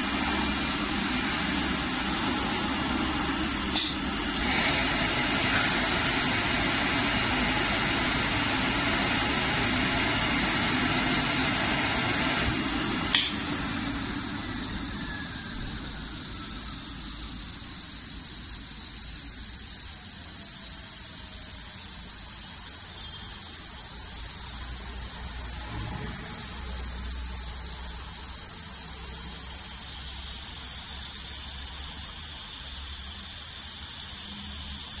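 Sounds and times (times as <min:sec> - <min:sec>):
cutting machine rushing noise: 0:00.0 - 0:18.0
motor whine spinning down: 0:00.0 - 0:21.1.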